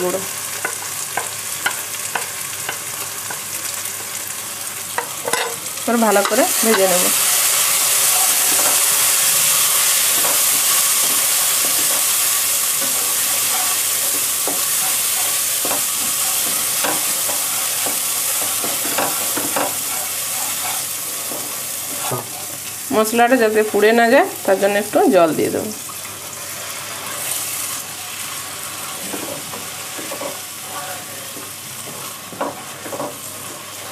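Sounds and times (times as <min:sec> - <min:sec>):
masala sizzling in oil: 0:00.0 - 0:33.9
spatula knocking and scraping pan: 0:00.6 - 0:03.4, 0:07.9 - 0:09.2, 0:09.8 - 0:22.5, 0:28.9 - 0:30.4, 0:31.3 - 0:33.6.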